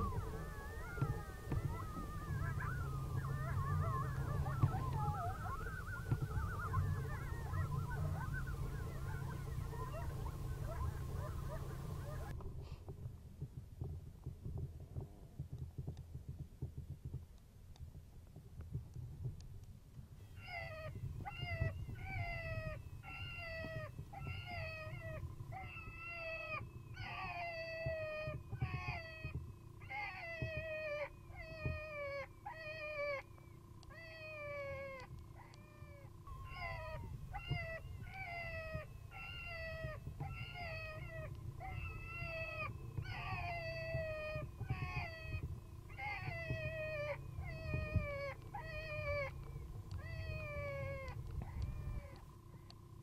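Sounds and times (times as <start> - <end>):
wind buffeting microphone: 0.0 - 17.3, 17.9 - 32.1, 36.0 - 52.2
meow-like distress cries: 33.9 - 52.2.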